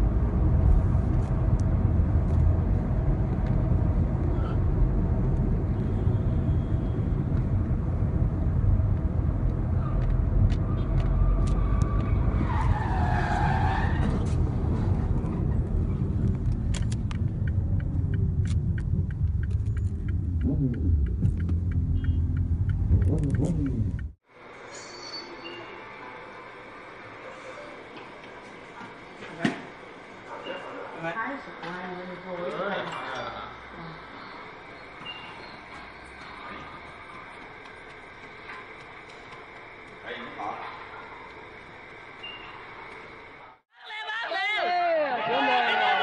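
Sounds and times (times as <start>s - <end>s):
car road and engine rumble: 0.0s - 24.5s, 33.3s - 43.6s
tyre screech: 11.2s - 14.5s.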